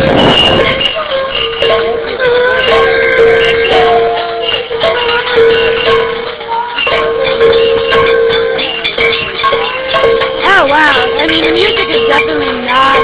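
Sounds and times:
horn-like noisemaker blasts: 0.0 - 6.2
other held tones: 0.0 - 13.0
pots and pans banging: 0.0 - 13.0.

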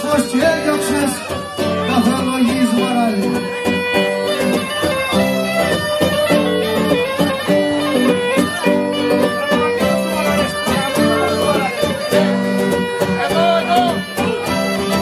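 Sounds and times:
bagpipe melody: 0.0 - 15.0
lute strummed: 0.0 - 15.0.

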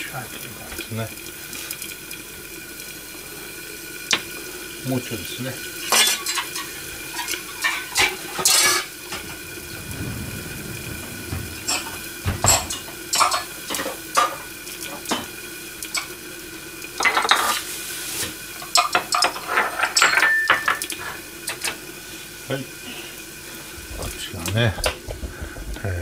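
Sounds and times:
faint steady hum: 0.0 - 17.7
dishes clinking and knocking: 5.9 - 15.4, 17.0 - 17.6, 18.7 - 21.7, 23.8 - 26.0.

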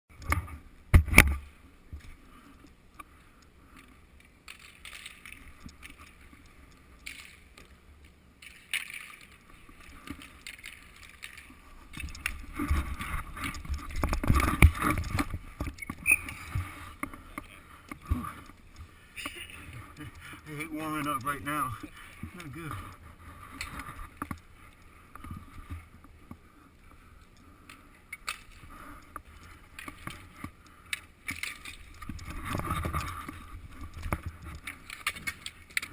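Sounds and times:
sticks and skates scraping: 8.4 - 26.5.

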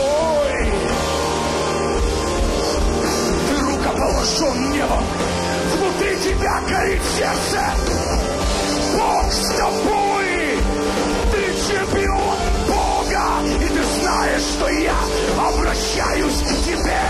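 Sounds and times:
man yelling into microphone: 5.7 - 7.8, 8.9 - 10.7, 11.3 - 17.0.

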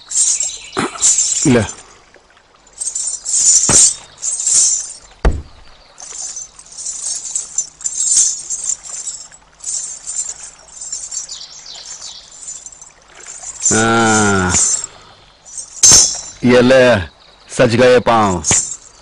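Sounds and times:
ankle bells jingling: 0.0 - 19.0
dull thump: 5.2 - 5.8.

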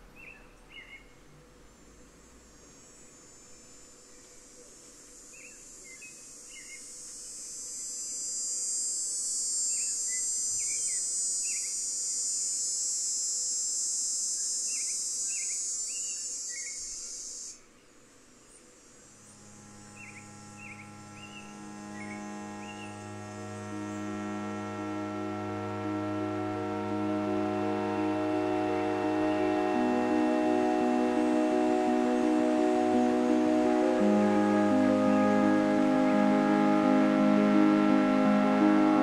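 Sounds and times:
cicada buzzing: 2.4 - 17.6, 18.6 - 27.0
low synthesizer drone: 18.9 - 39.0.

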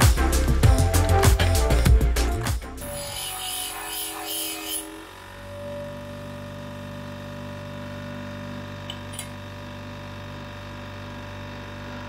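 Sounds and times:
bench grinder motor hum: 2.8 - 12.0.

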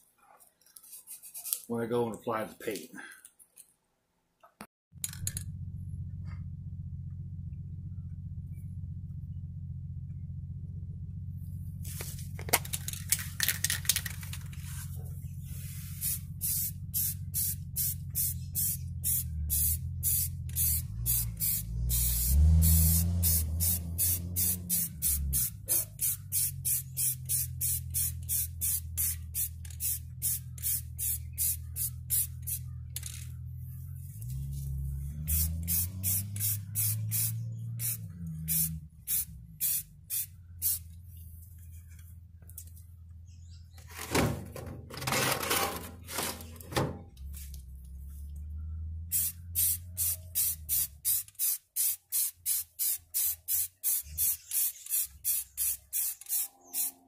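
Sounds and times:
low rumble: 5.0 - 43.7, 47.0 - 50.0
spray can hissing: 15.5 - 32.6, 35.2 - 40.9, 49.1 - 56.9.

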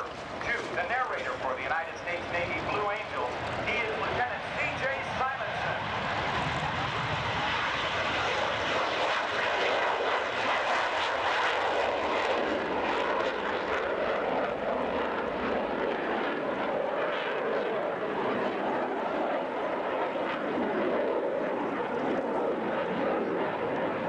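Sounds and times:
fighter jet taking off: 0.0 - 12.9.

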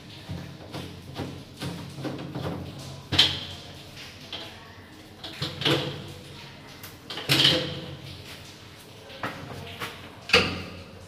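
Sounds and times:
hard plastic knocking and scraping: 0.2 - 3.6.

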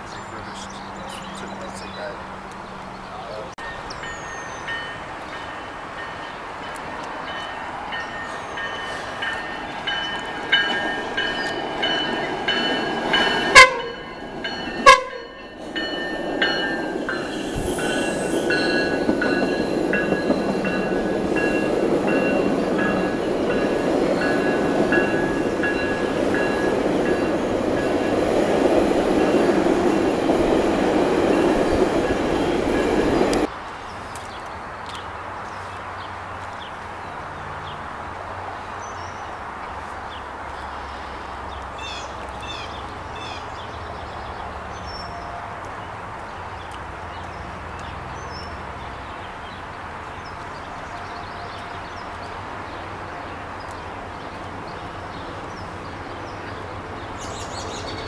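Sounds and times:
train wheels rumbling on rails: 3.6 - 33.5
train horn short blasts: 13.3 - 14.2, 14.8 - 15.4.

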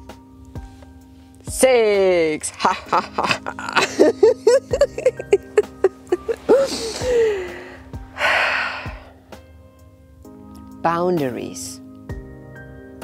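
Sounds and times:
faint background music: 0.0 - 13.0
woman laughing: 2.6 - 7.7.

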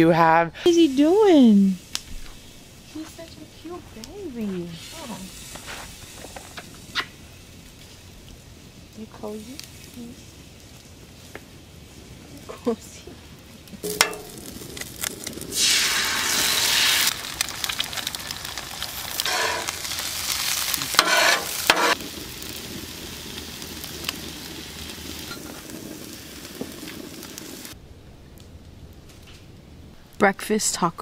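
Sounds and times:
eggs sizzling on a griddle: 0.7 - 12.0, 13.8 - 27.8
metal spatula scraping: 19.3 - 19.8, 20.9 - 22.0.

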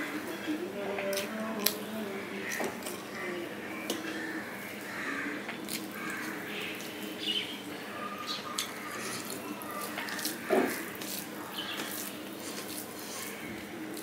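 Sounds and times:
wet eating smacks: 8.5 - 12.9
fingers squishing wet rice: 8.5 - 14.0.

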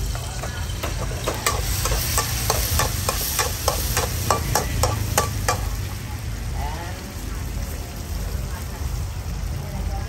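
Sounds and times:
metal spatula scraping a wok: 0.0 - 5.8.

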